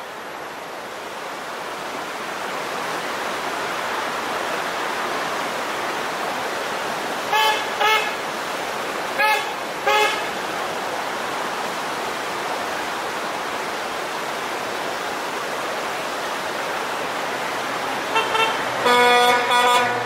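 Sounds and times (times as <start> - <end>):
steady rushing noise: 0.0 - 20.0
car horn beeps: 7.3 - 8.2, 9.2 - 10.3, 18.1 - 20.0.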